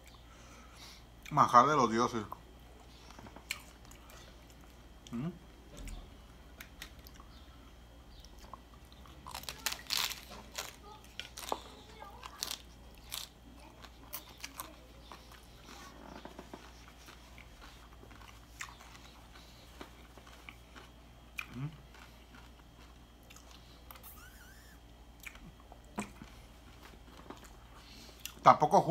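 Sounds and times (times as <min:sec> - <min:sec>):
chewing with crackles: 0:02.1 - 0:28.5
crunching tostada shell: 0:08.3 - 0:13.4.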